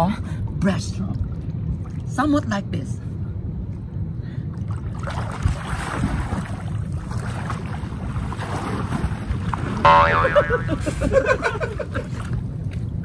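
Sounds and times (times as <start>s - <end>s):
wind rumble on microphone: 0.0s - 13.0s
pool water splashing: 4.6s - 13.0s.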